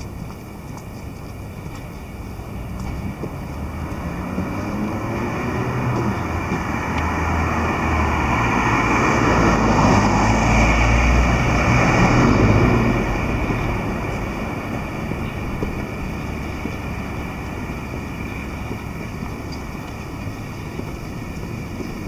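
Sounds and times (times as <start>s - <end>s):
car driving past: 3.0s - 20.0s.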